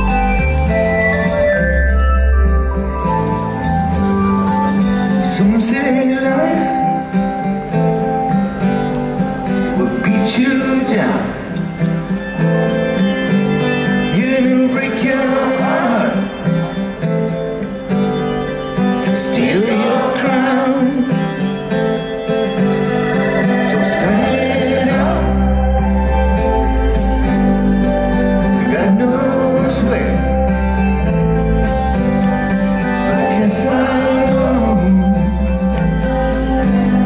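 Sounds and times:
acoustic guitar strumming: 0:00.0 - 0:37.0
keyboards: 0:00.0 - 0:37.0
live rock band playing: 0:00.0 - 0:37.0
person singing: 0:05.1 - 0:07.2, 0:09.7 - 0:11.8, 0:19.0 - 0:21.4, 0:23.0 - 0:31.0, 0:33.0 - 0:37.0
deep bass: 0:24.1 - 0:37.0.

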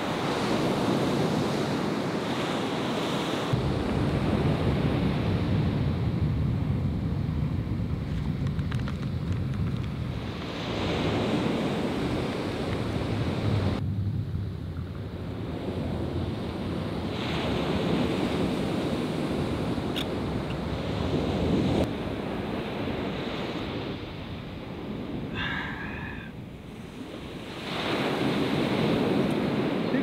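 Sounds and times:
ocean surf washing on beach: 0:00.0 - 0:30.0
wind buffeting microphone: 0:00.0 - 0:30.0.

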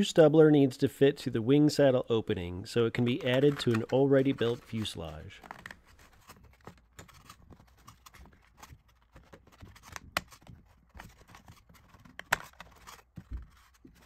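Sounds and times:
plastic scraping: 0:02.9 - 0:14.0.

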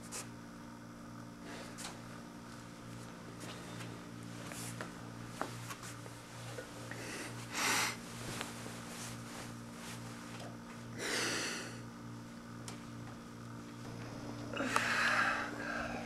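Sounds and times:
low pulsing hum: 0:00.0 - 0:16.0.

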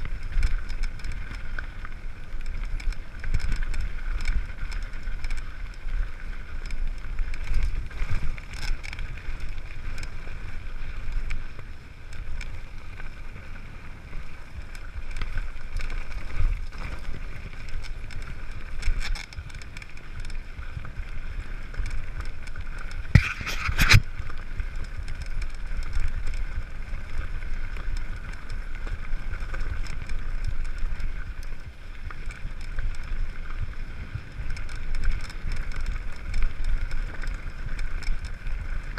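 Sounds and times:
bike rattling clicks: 0:00.0 - 0:38.9
tyres on gravel: 0:00.0 - 0:38.9
wind rumble on microphone: 0:00.0 - 0:38.9.

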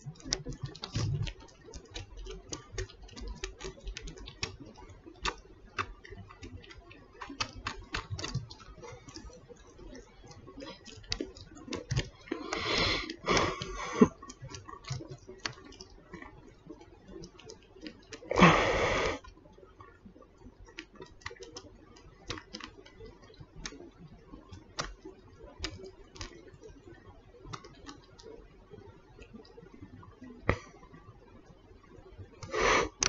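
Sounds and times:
kitten suckling clicks and smacks: 0:00.0 - 0:18.3, 0:20.6 - 0:26.8.

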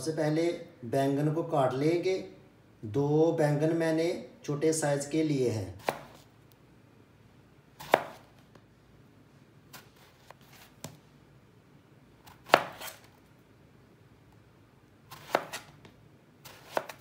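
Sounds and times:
knife slicing eggplant: 0:05.8 - 0:06.3, 0:07.8 - 0:08.4, 0:09.7 - 0:11.0, 0:12.2 - 0:13.2, 0:15.1 - 0:17.0.

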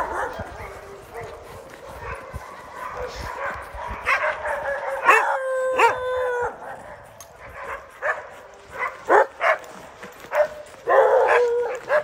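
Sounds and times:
sled dogs barking: 0:00.0 - 0:12.0
dog howling: 0:04.4 - 0:06.9, 0:10.8 - 0:12.0.

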